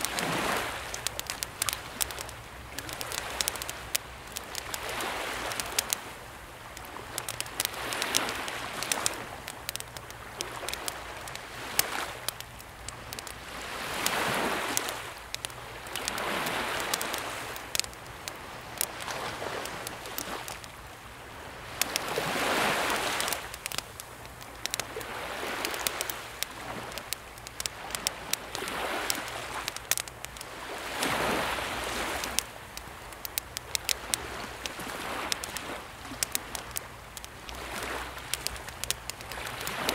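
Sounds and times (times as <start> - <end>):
campfire crackling and popping: 0.0 - 39.9
sea waves washing on shore: 0.0 - 39.9.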